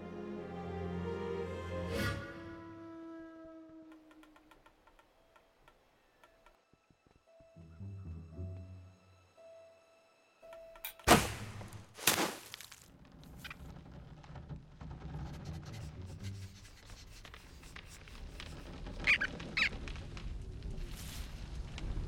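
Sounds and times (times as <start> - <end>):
short high squeaks: 19.0 - 19.8.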